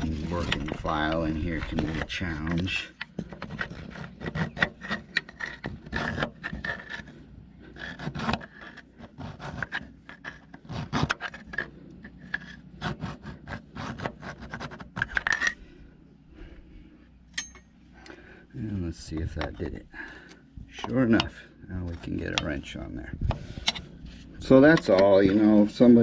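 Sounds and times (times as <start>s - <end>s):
hand file rasping on metal: 3.4s - 15.2s.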